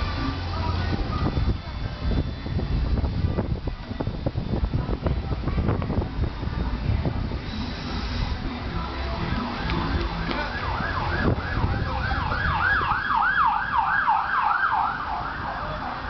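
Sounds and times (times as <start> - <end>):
steady low rumble: 0.0 - 16.0
warbling siren: 9.1 - 16.0.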